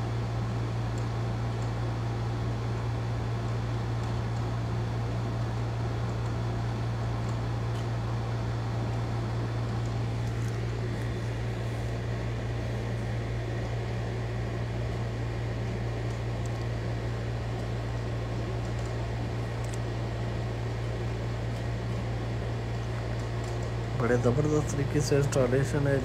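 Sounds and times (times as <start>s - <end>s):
low machine hum: 0.0s - 26.0s.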